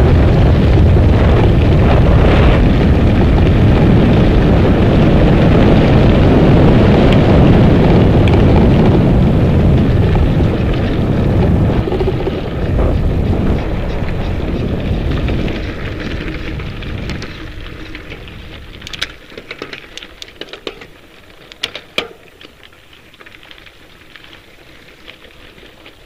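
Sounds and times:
wind on microphone: 0.0s - 20.8s
bike tyres on gravel: 0.0s - 26.0s
clicks and rattles: 10.8s - 23.5s.

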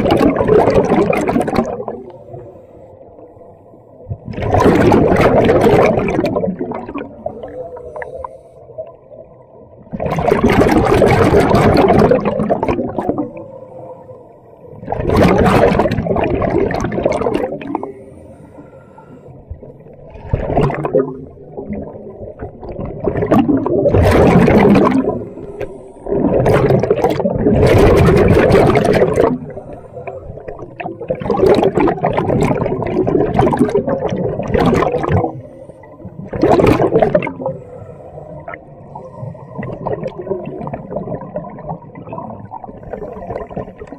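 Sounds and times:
regulator exhaust bubbles: 0.0s - 2.1s, 4.1s - 7.6s, 14.8s - 17.9s, 19.5s - 25.4s, 26.0s - 29.6s, 30.4s - 35.4s, 36.2s - 37.5s.

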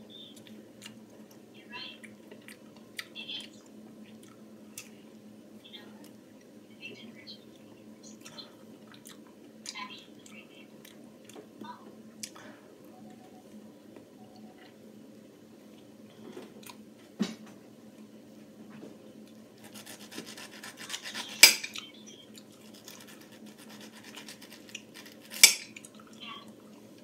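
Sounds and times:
knife scraping a plate: 19.6s - 21.8s, 22.7s - 25.7s.

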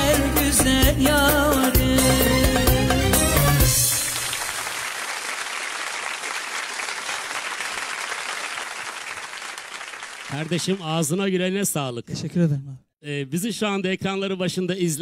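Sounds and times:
folk song: 0.0s - 4.4s
audience clapping: 3.4s - 11.3s.

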